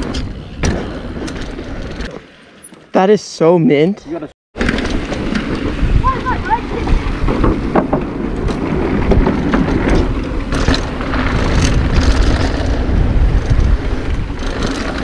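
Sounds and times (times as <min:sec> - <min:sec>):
bike rattling over bumps: 0:00.0 - 0:02.6, 0:04.6 - 0:15.0
bike tyre noise: 0:00.0 - 0:02.9, 0:04.6 - 0:15.0
wind rumble on microphone: 0:04.6 - 0:15.0.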